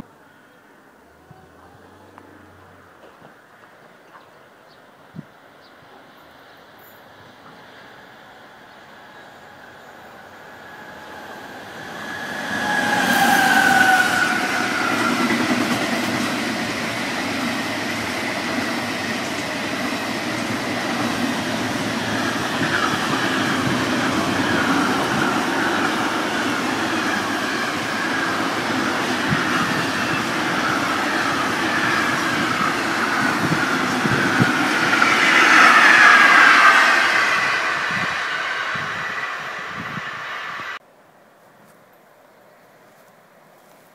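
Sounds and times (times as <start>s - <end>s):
freight train rumble: 7.1s - 40.8s.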